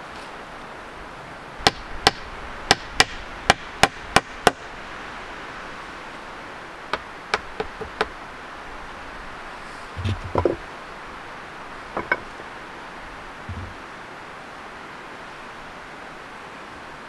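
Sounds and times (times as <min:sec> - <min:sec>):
steady background hiss: 0:00.0 - 0:17.0
sharp wooden taps: 0:06.9 - 0:08.2, 0:10.0 - 0:10.6, 0:13.5 - 0:13.8
heavy dull wooden thumps: 0:10.0 - 0:10.6, 0:13.5 - 0:13.8.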